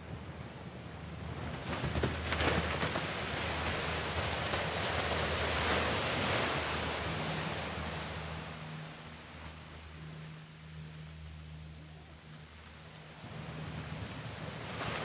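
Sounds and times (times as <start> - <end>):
low steady hum: 0.0 - 15.0
small waves breaking on beach: 1.4 - 8.7, 13.2 - 15.0.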